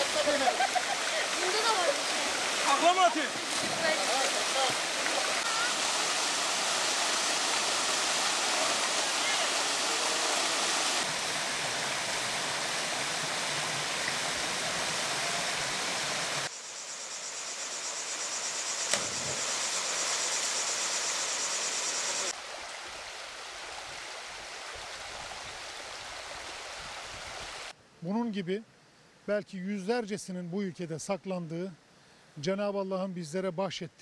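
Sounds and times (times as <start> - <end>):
shallow stream: 0.0 - 16.5, 18.6 - 27.8
waterfall rushing into pool: 0.0 - 16.5, 18.8 - 27.8.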